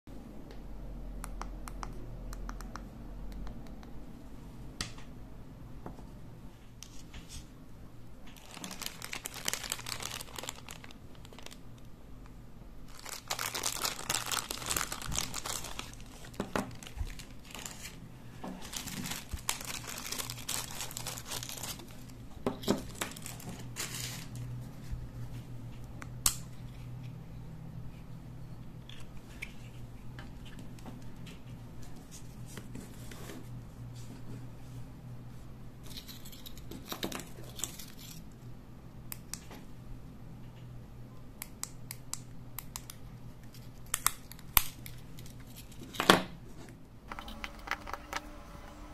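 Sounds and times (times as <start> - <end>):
plastic bags crinkling: 8.4 - 11.6, 12.9 - 18.0, 18.6 - 24.4.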